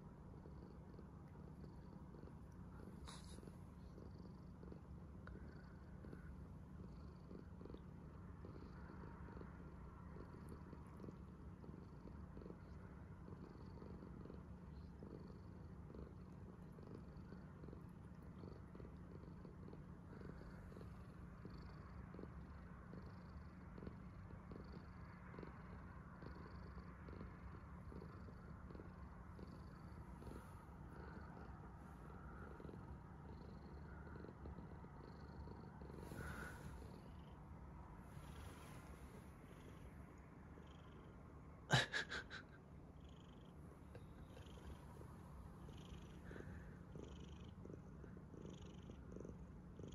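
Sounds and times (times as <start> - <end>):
cat purring: 0.0 - 49.9.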